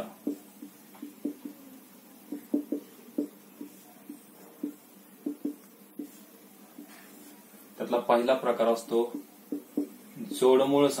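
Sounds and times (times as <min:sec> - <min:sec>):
marker pen writing on whiteboard: 0:00.0 - 0:01.7, 0:02.3 - 0:07.6, 0:08.9 - 0:10.6.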